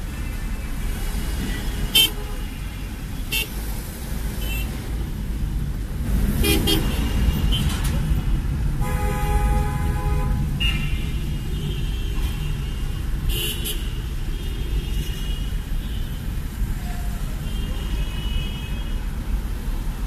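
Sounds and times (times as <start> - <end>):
car engine and road noise: 0.0 - 20.0
car horn toots: 8.8 - 12.5.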